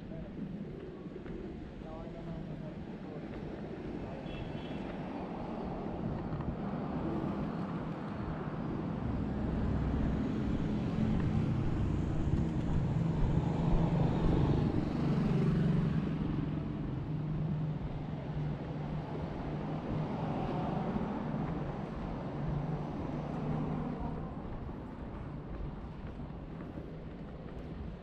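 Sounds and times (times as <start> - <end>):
street traffic: 0.0 - 28.0.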